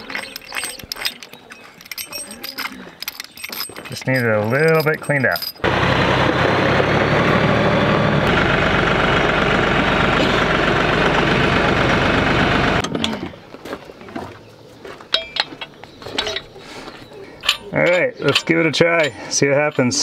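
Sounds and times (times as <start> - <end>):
tractor diesel engine running: 5.6 - 12.8
metal hitch pin clicks: 17.4 - 20.0.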